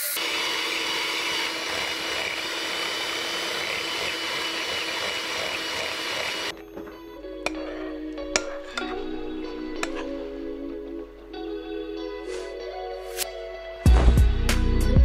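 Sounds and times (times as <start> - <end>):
electric hand mixer whisking: 0.0 - 6.5, 7.5 - 10.5.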